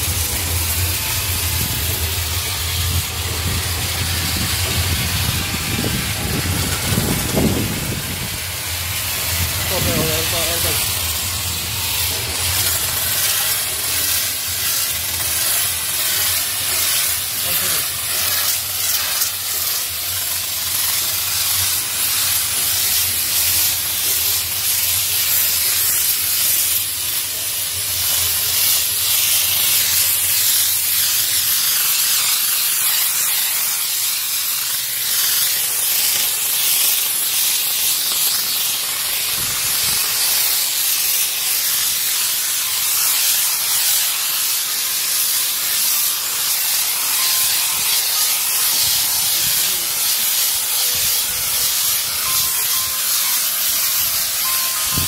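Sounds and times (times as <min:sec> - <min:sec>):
steam gun hissing: 0:00.0 - 0:55.0.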